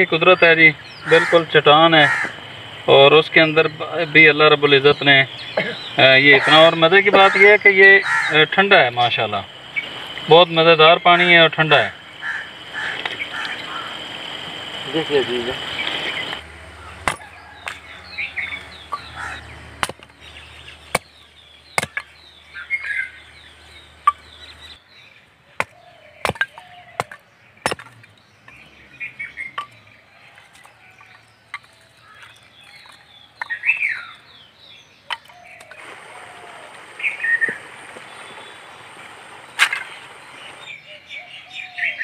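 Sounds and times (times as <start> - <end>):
birds chirping: 0.0 - 42.0
hatchet chopping kindling: 16.9 - 18.0, 18.7 - 22.2, 25.6 - 28.6.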